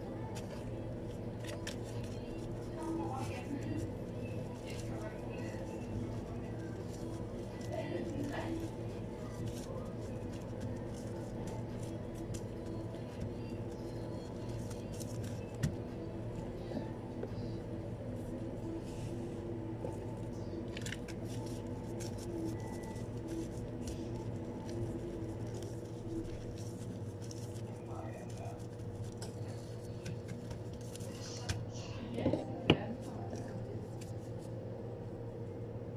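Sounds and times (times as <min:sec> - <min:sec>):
hands tapping and rustling: 0:20.7 - 0:31.7.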